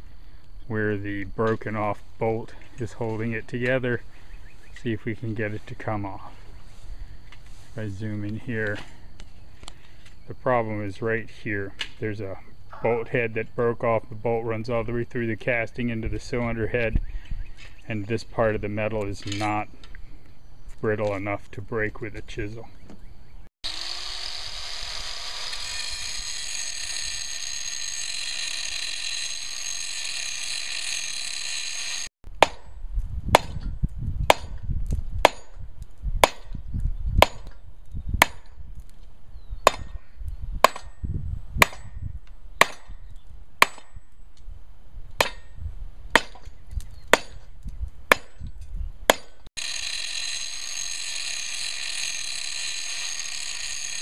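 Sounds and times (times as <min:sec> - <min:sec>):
electric angle grinder running: 0:23.6 - 0:32.1, 0:49.6 - 0:54.0.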